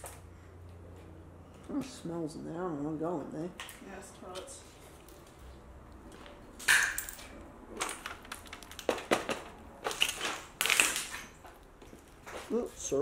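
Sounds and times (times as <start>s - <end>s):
footsteps crunching on broken glass: 6.1s - 12.9s.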